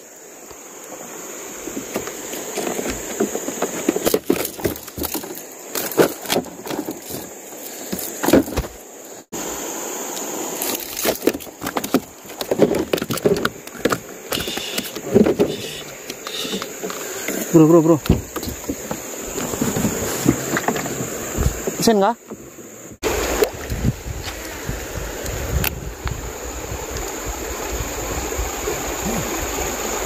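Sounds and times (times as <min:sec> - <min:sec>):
high-pitched insect drone: 0:00.0 - 0:23.0.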